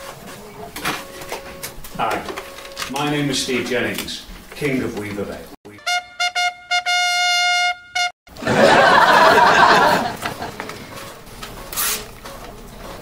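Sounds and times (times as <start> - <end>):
trumpet fanfare: 5.7 - 8.2.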